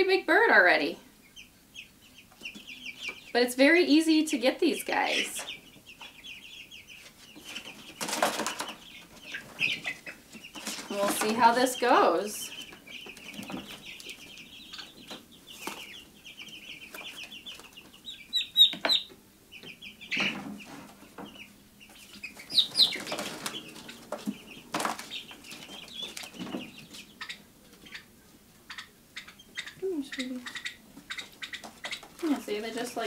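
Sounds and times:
chicks peeping: 0:00.1 - 0:33.0
wings flapping and scuffling: 0:07.0 - 0:19.1, 0:20.1 - 0:33.0.

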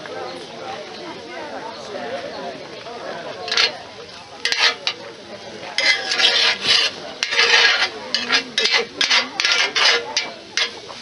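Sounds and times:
metal spoon scraping iron pot: 0:03.5 - 0:03.8, 0:04.4 - 0:05.0, 0:05.7 - 0:11.0.

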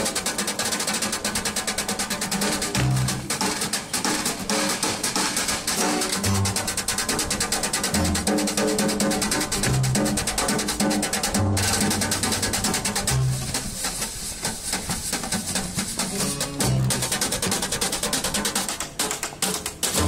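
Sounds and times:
snare drum played with brushes: 0:00.0 - 0:20.0
plucked upright bass: 0:02.7 - 0:03.3, 0:07.9 - 0:13.7, 0:16.1 - 0:17.7
acoustic guitar: 0:05.5 - 0:20.0.

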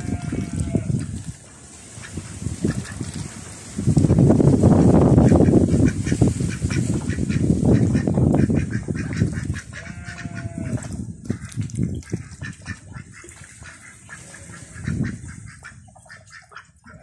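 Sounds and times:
ducks splashing in water: 0:00.0 - 0:04.0, 0:04.7 - 0:17.0
ducks quacking: 0:05.2 - 0:17.0.

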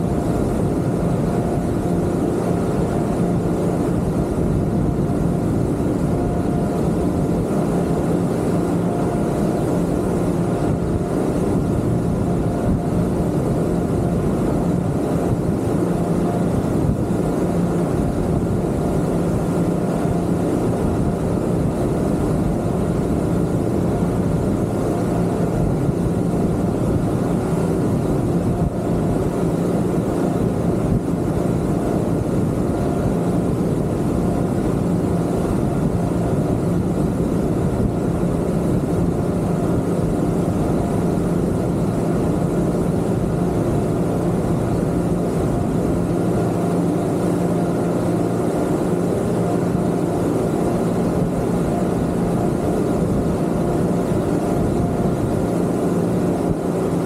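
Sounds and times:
outboard motors droning: 0:00.0 - 0:57.0
wind and water rushing: 0:00.0 - 0:57.0.

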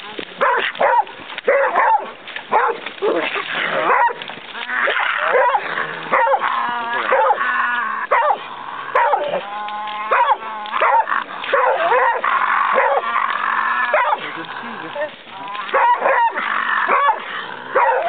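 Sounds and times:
dog barking: 0:00.4 - 0:02.8, 0:03.8 - 0:04.2, 0:05.3 - 0:06.4, 0:07.1 - 0:07.4, 0:08.1 - 0:09.4, 0:10.1 - 0:12.2, 0:12.8 - 0:13.0, 0:13.9 - 0:14.2, 0:15.7 - 0:17.2, 0:17.8 - 0:18.0
dog drawn-out calls: 0:00.4 - 0:18.0.

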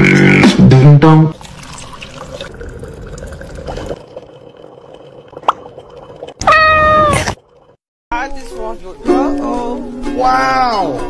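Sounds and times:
liquid trickling and dripping: 0:01.4 - 0:06.5.

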